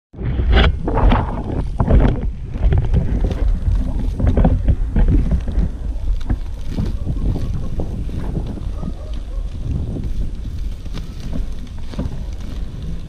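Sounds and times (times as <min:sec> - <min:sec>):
wind buffeting microphone: 0:00.1 - 0:13.0
skate scuffs: 0:00.4 - 0:13.0
skate wheels rolling on asphalt: 0:00.4 - 0:13.0.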